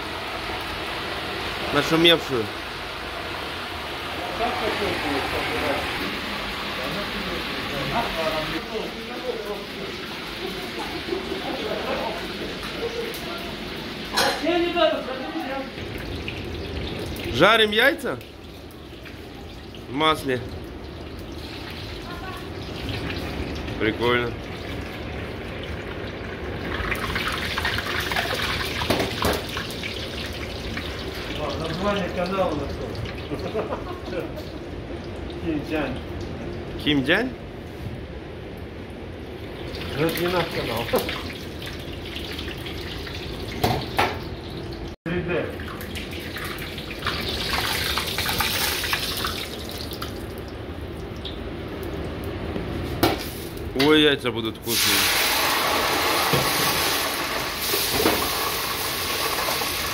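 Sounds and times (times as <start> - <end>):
egg deep-frying in sizzling oil: 0.0 - 14.4, 15.2 - 36.4, 45.6 - 53.7, 54.7 - 59.9
eggs sizzling in hot oil: 54.7 - 59.9.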